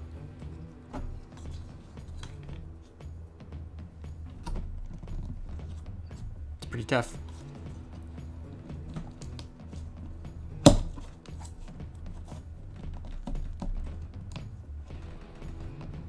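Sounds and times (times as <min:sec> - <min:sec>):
background music: 0:00.0 - 0:16.0
sharp plastic crack: 0:10.6 - 0:11.6.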